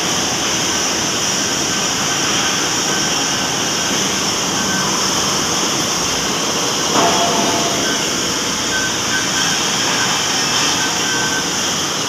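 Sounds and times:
lathe cutting metal: 3.8 - 11.8
faint whistle tones: 7.4 - 11.7.

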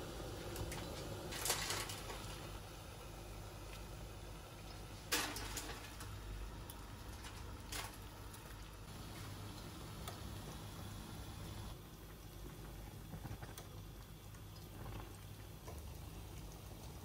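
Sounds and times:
water boiling: 0.0 - 17.0.

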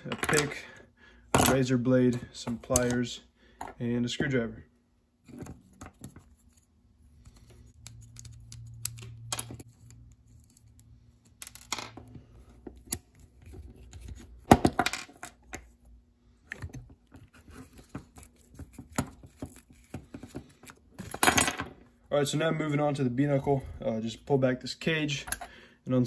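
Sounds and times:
small metal parts handled: 7.2 - 15.6.

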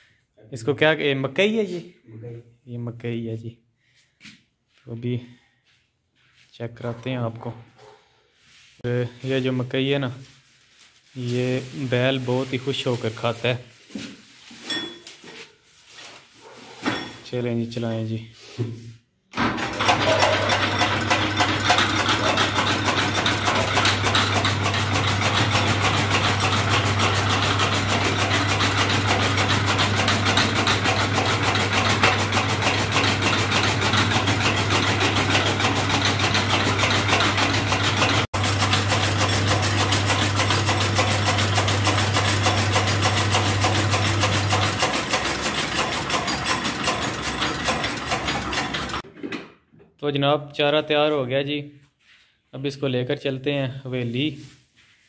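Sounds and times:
chaff cutter blades clicking: 19.8 - 49.0
electric motor hum: 20.8 - 49.0.

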